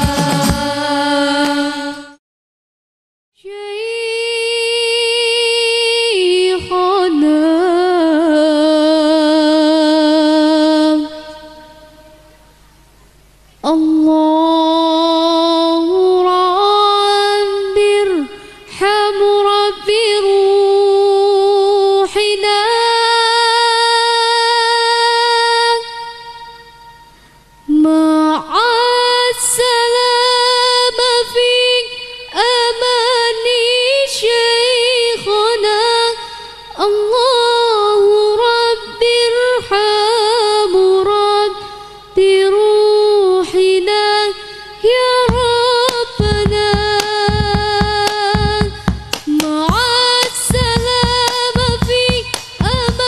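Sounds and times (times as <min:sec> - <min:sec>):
person singing chant-like notes: 0:00.0 - 0:02.2, 0:43.5 - 0:53.0
woman singing long held notes: 0:00.0 - 0:02.2, 0:03.4 - 0:12.3, 0:13.6 - 0:53.0.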